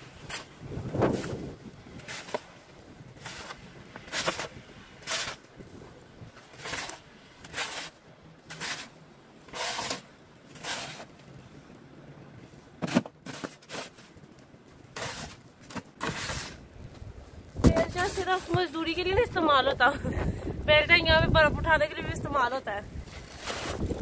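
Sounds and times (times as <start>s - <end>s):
snow shovel scraping on paving: 0.0s - 2.6s, 3.2s - 5.6s, 6.4s - 11.2s, 12.8s - 14.2s, 14.9s - 16.6s, 17.6s - 19.2s, 23.0s - 24.0s.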